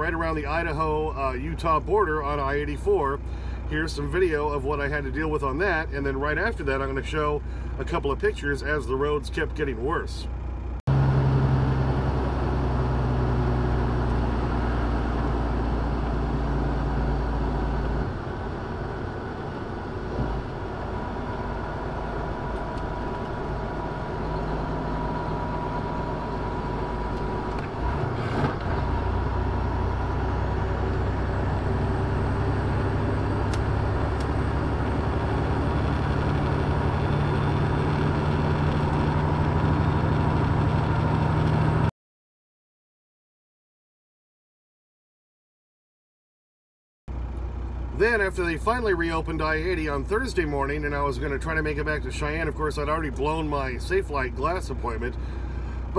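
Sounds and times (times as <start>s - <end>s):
road noise: 0.0s - 41.9s, 47.1s - 55.9s
truck diesel engine drone: 0.0s - 41.9s, 47.1s - 55.9s.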